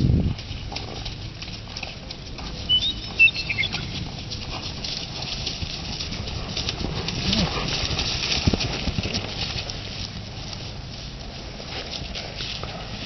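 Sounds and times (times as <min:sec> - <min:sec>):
soft hoofbeats: 0:00.0 - 0:13.0
short high chirps: 0:02.7 - 0:04.1.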